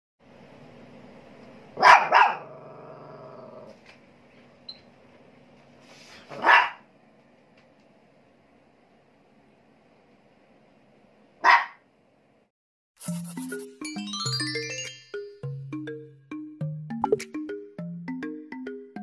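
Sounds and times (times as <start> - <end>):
small dog barking: 1.8 - 2.6, 6.3 - 6.9, 11.4 - 11.8
dog growling: 2.1 - 3.8.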